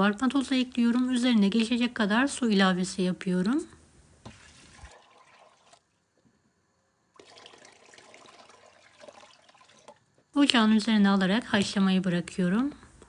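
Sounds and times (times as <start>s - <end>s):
water pouring into a pot: 4.3s - 6.0s, 7.2s - 10.1s.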